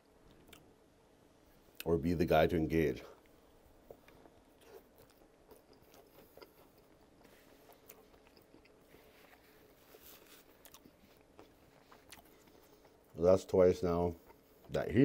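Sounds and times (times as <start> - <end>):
close-up chewing: 3.2 - 13.2.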